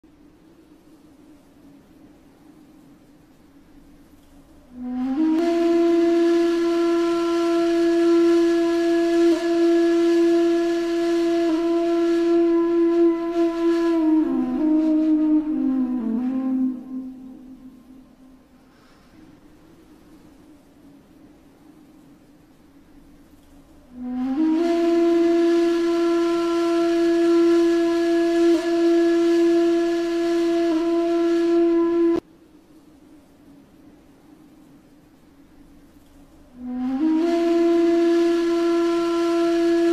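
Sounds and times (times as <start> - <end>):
flute-like wind instrument: 4.7 - 18.6, 23.9 - 32.2, 36.5 - 39.9.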